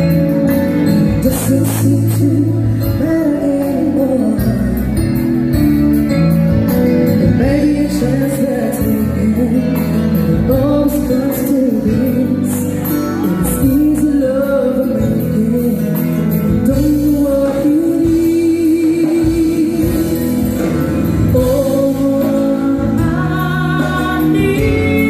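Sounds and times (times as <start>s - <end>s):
amplified guitars: 0.0s - 25.0s
drums: 0.0s - 25.0s
woman singing: 1.0s - 5.4s, 7.1s - 25.0s.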